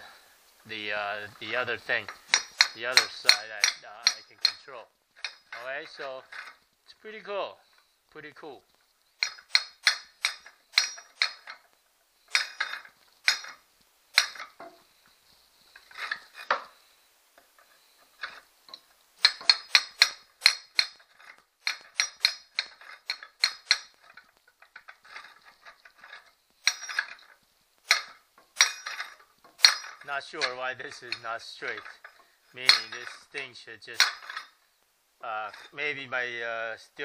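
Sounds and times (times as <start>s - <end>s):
steel rod clinking against metal: 1.2s - 6.6s, 9.2s - 13.6s, 14.2s - 14.9s, 15.7s - 16.8s, 17.5s - 34.6s, 35.4s - 35.8s.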